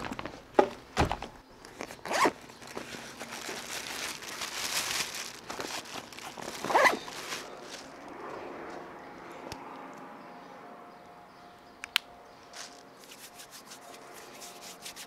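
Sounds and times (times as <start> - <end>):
zip being pulled: 2.1 - 2.3, 6.6 - 7.0
fabric rustling: 2.1 - 8.0.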